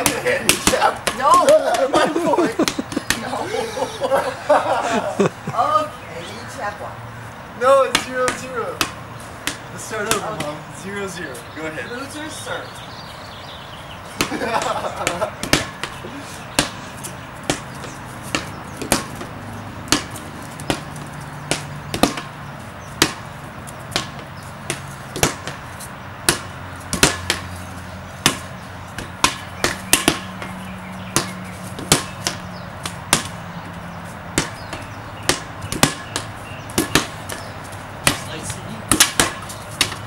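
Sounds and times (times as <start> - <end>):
rubber ball smacking on concrete: 0.0 - 2.0, 2.6 - 3.3, 7.8 - 10.6, 14.1 - 25.6, 26.2 - 27.6, 28.2 - 40.0.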